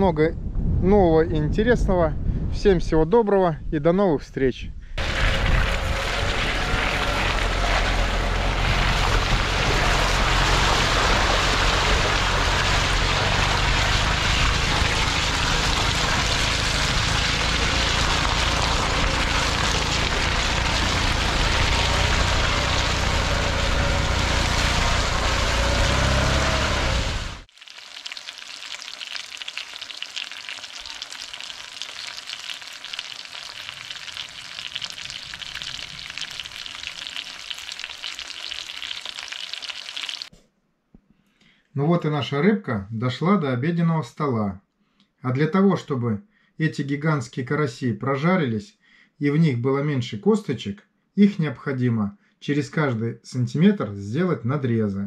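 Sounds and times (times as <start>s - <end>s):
wind buffeting microphone: 0.3s - 3.8s, 4.7s - 7.4s
car engine running: 5.0s - 27.5s
tyres churning through water: 5.0s - 27.5s
fish frying in a pan: 8.8s - 26.2s, 27.4s - 40.3s.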